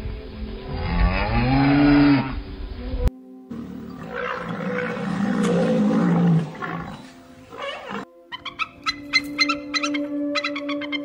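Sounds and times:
cow mooing: 0.7 - 2.4, 3.5 - 8.1.

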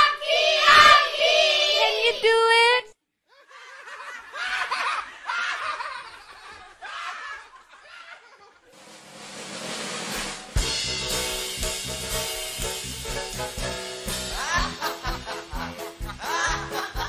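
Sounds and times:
laughter: 3.3 - 8.8, 14.4 - 17.0
upbeat music with drums: 8.8 - 17.0.

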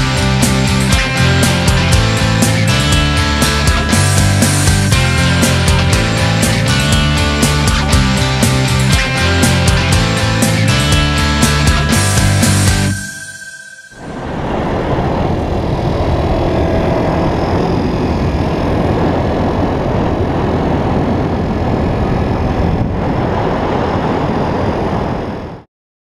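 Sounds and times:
wind rushing over helmet: 8.6 - 25.7.

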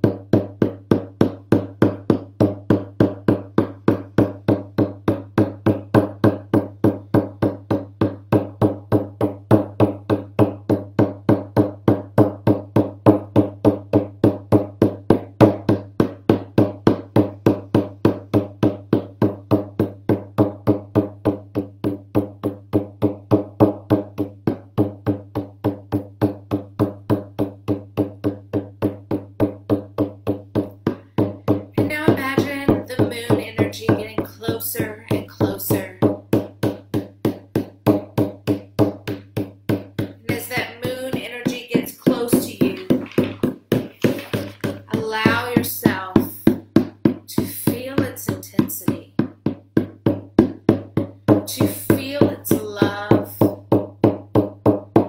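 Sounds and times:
frame drum beating: 0.0 - 55.0
person's voice: 31.8 - 36.0, 40.2 - 43.4, 44.0 - 46.5, 47.3 - 49.1, 51.5 - 53.4.

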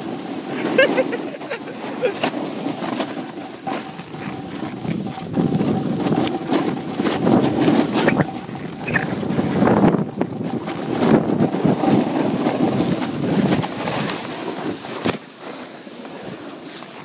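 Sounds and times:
snowboard carving snow: 0.0 - 17.0
wind buffeting microphone: 2.9 - 14.2.

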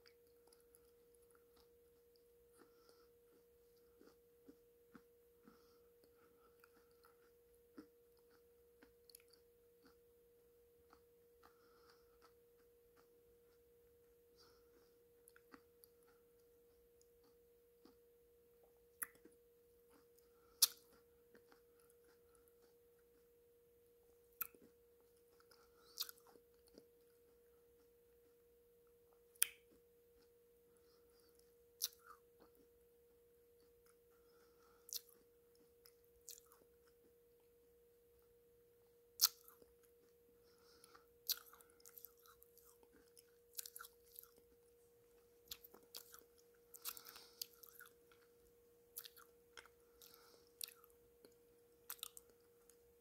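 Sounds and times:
faint hum: 0.0 - 53.0
wet lip and tongue clicks: 18.9 - 19.4, 20.6 - 21.6, 25.4 - 26.9, 29.3 - 29.8, 31.8 - 32.2, 34.9 - 35.2, 39.2 - 39.7, 41.2 - 44.4, 45.5 - 48.2, 49.0 - 52.8.

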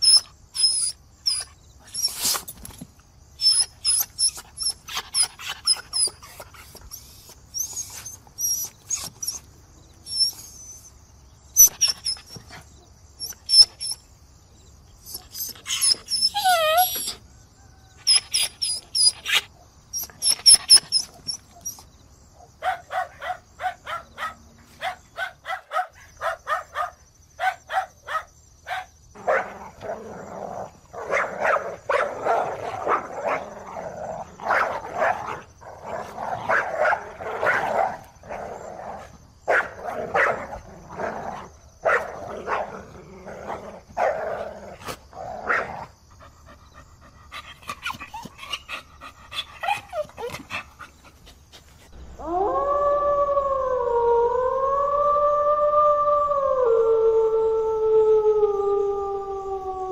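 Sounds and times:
dog barking: 22.6 - 29.8, 31.0 - 33.5, 34.4 - 35.5, 36.4 - 38.0, 39.5 - 40.5, 41.8 - 42.8.

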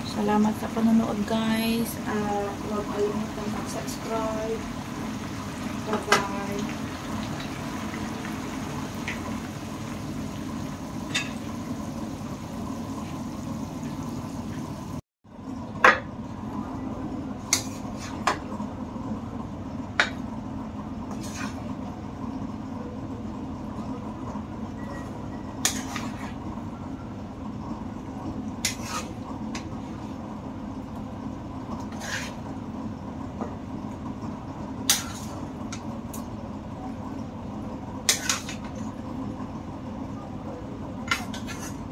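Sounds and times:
steady low hum: 0.0 - 15.6.

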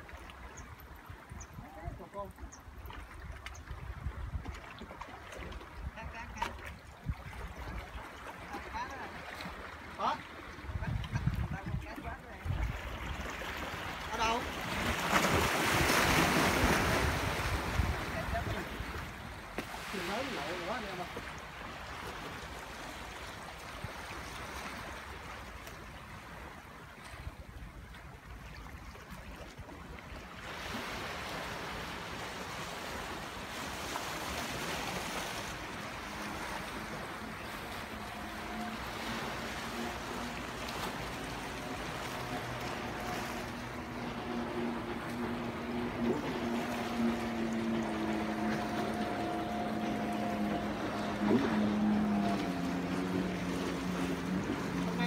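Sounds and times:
waves surging: 5.1 - 26.7, 30.2 - 55.0
wind noise: 10.7 - 11.9
low motor hum: 31.7 - 55.0.

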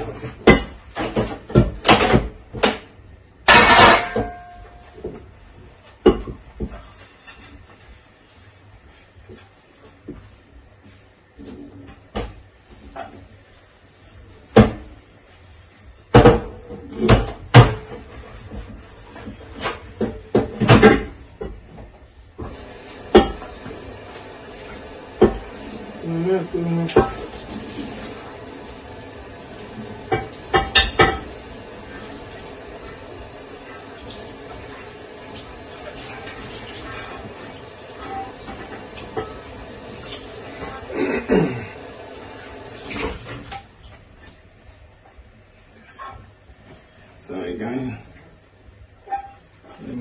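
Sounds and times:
kitchenware clattering: 0.0 - 2.8, 3.4 - 5.1, 19.2 - 21.7, 22.5 - 23.7, 26.8 - 28.4, 29.9 - 31.4, 38.0 - 41.2.

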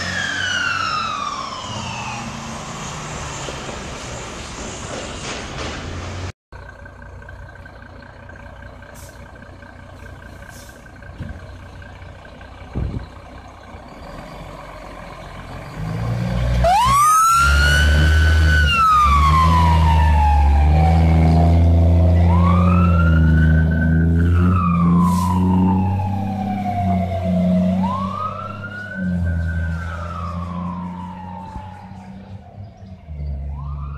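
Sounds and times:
wailing siren: 0.0 - 3.5, 16.5 - 33.9
fire engine rumbling: 0.0 - 33.9.

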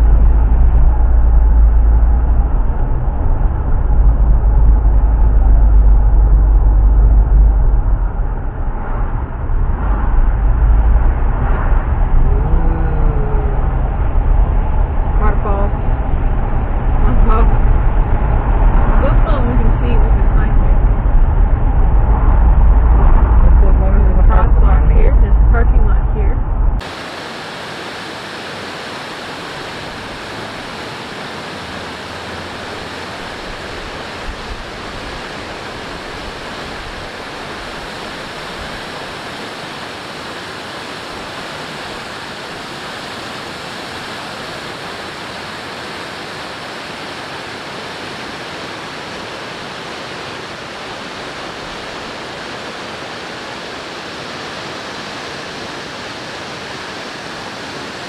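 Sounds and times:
waterfall rushing: 26.8 - 58.0.

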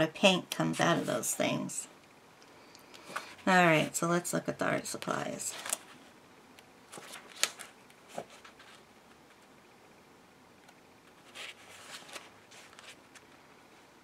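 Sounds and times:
booklet pages rustling: 0.4 - 1.7, 4.8 - 6.1, 6.9 - 9.6, 11.0 - 13.4.

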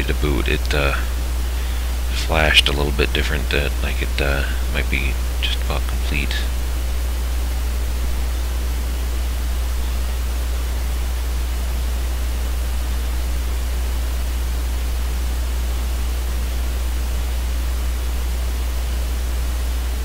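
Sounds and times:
low electrical hum: 0.0 - 20.0
microphone hiss: 0.0 - 20.0.

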